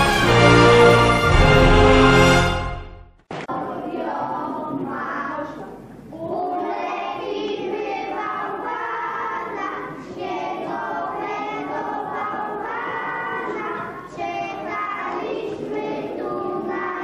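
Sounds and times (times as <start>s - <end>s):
children singing: 3.5s - 17.0s.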